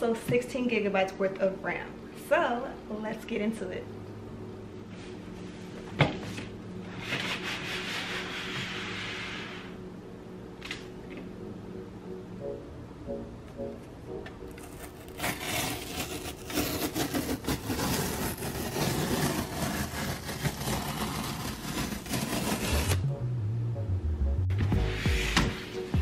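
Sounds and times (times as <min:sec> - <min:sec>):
packing tape ripping: 0:14.5 - 0:23.0.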